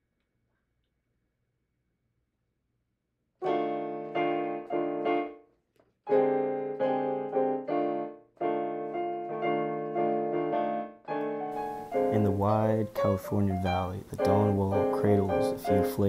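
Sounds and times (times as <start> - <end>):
digital piano chords: 3.4 - 16.0.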